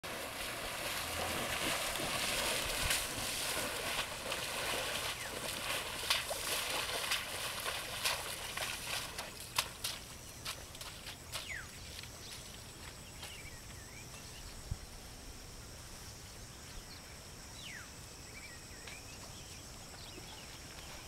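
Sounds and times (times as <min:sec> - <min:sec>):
elephant wading through water: 0:00.0 - 0:13.4.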